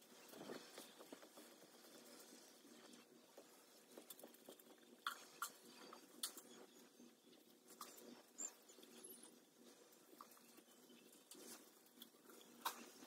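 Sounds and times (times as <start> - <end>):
faint clicks and taps: 0.0 - 13.0.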